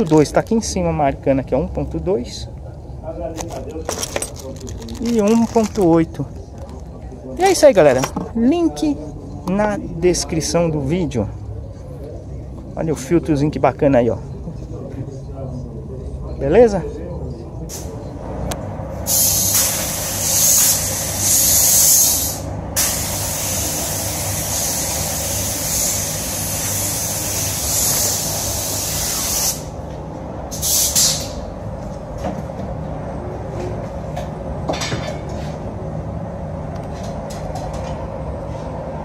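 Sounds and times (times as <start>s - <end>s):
paint spray gun hissing: 19.1s - 29.7s
steady low hum: 22.3s - 39.0s.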